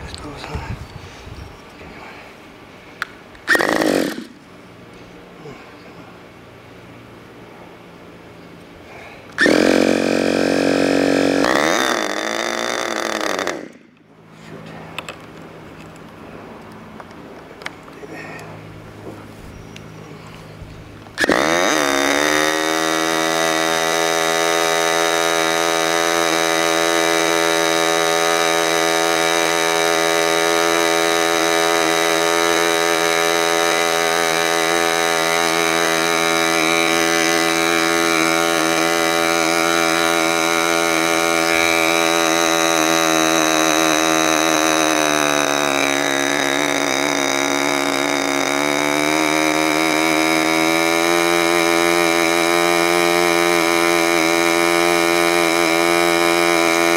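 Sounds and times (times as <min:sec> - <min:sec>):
electric starter: 0:03.0 - 0:05.2, 0:08.5 - 0:14.3, 0:20.9 - 0:56.9
model airplane engine running: 0:03.5 - 0:04.9, 0:09.2 - 0:13.9, 0:20.3 - 0:56.9.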